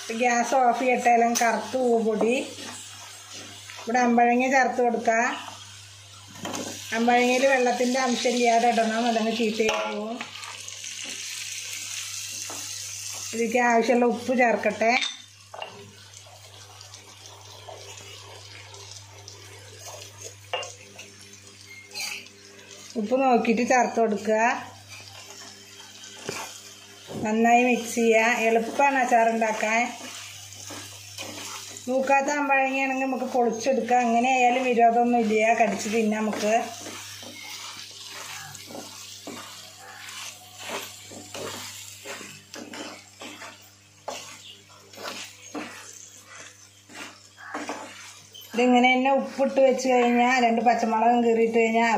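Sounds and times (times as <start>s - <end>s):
oil sizzling in a frying pan: 0.0s - 51.9s
spoon scraping frying pan: 24.9s - 50.3s.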